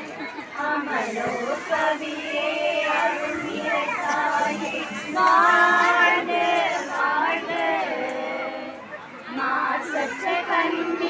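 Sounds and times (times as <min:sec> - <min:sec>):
women singing together: 0:00.1 - 0:11.0.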